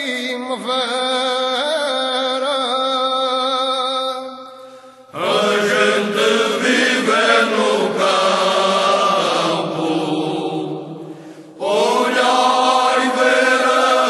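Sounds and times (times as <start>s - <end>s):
unaccompanied choir singing: 5.2s - 14.0s.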